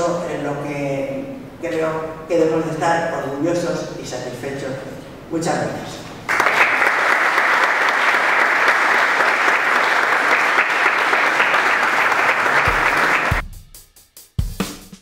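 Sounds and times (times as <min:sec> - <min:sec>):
audience applauding: 0:06.3 - 0:13.4
music drum beats: 0:10.8 - 0:15.0.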